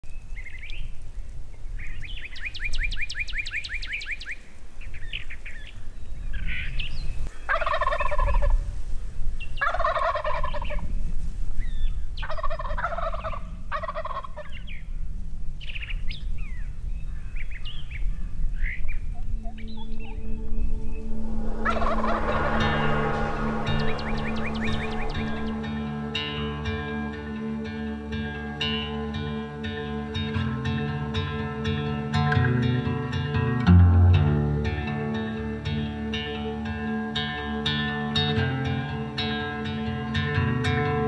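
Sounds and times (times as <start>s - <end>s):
songbirds chirping: 0.0s - 33.5s
turkey gobbling: 7.5s - 8.5s, 9.6s - 10.8s, 12.2s - 14.6s, 21.7s - 22.5s.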